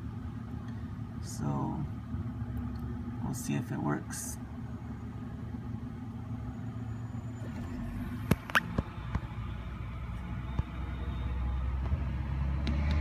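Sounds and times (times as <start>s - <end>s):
low mechanical hum: 0.0s - 13.0s.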